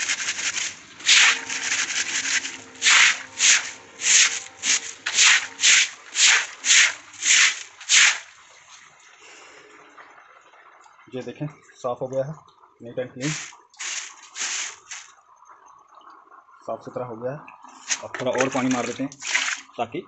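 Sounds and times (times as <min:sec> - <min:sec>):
broom scrubbing wet concrete: 0:00.0 - 0:08.4, 0:13.2 - 0:15.1, 0:17.8 - 0:19.6.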